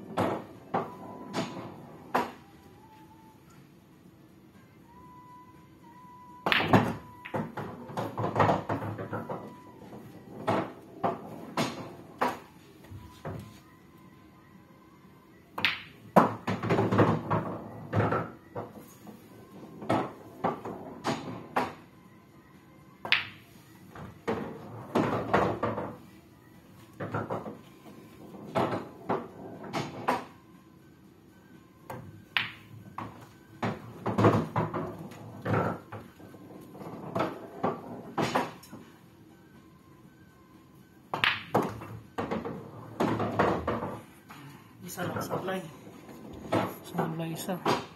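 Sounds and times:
pool balls clacking: 0:00.0 - 0:02.5, 0:06.5 - 0:13.5, 0:15.6 - 0:21.9, 0:23.0 - 0:26.0, 0:26.9 - 0:30.4, 0:31.9 - 0:38.8, 0:41.1 - 0:44.0, 0:45.0 - 0:47.9.

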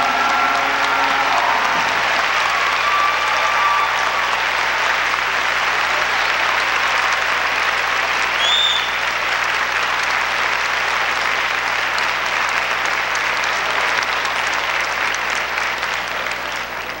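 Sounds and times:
high whistle: 0:00.0 - 0:05.1, 0:08.3 - 0:09.0
audience applauding: 0:00.0 - 0:17.0.

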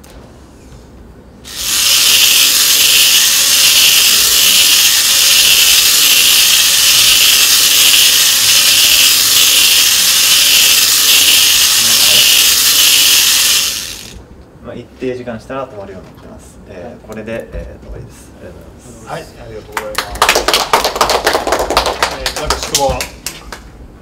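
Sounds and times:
small gear motors whirring: 0:01.5 - 0:14.2.

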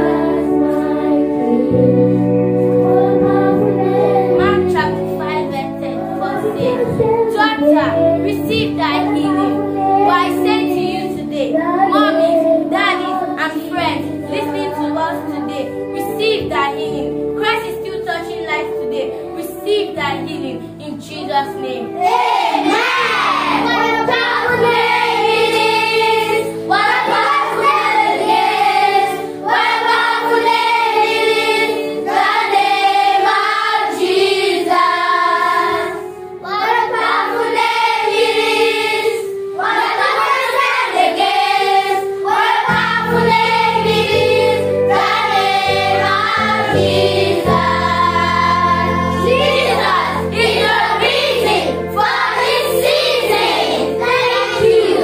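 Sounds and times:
children singing: 0:00.0 - 0:05.0, 0:22.0 - 0:55.0
girl singing lead: 0:00.0 - 0:55.0
instrumental accompaniment low notes: 0:00.0 - 0:55.0.

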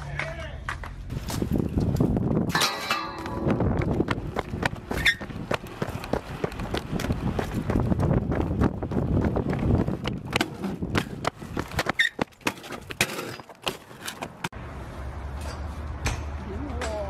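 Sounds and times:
bike tyres rumbling on concrete: 0:00.3 - 0:14.6.

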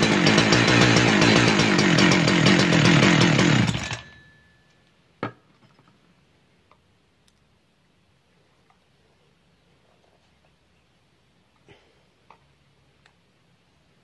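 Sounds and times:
chainsaw engine running: 0:00.0 - 0:04.2.

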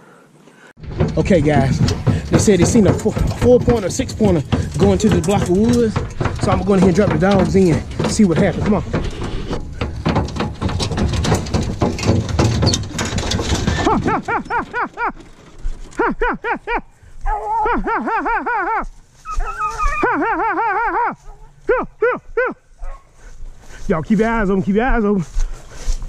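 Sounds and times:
clattering and rustling: 0:00.8 - 0:17.2
hounds yelping: 0:17.2 - 0:23.2.

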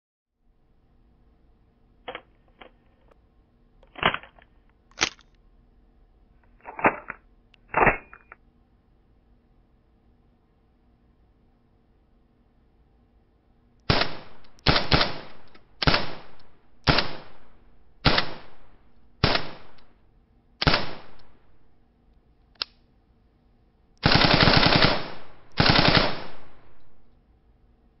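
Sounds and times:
automatic gunfire bursts: 0:13.9 - 0:17.4, 0:18.0 - 0:18.6, 0:19.2 - 0:19.8, 0:20.6 - 0:21.2, 0:24.0 - 0:26.8
rifle single shots echoing: 0:13.9 - 0:19.9, 0:20.6 - 0:21.4, 0:24.0 - 0:27.0.

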